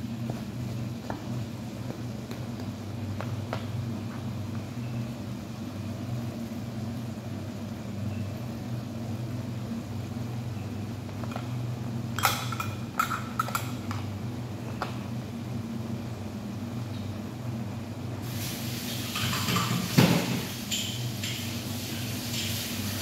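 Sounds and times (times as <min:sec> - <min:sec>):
kitchen fan humming: 0:00.0 - 0:23.0
kitchenware clattering: 0:11.2 - 0:14.1, 0:19.0 - 0:21.5.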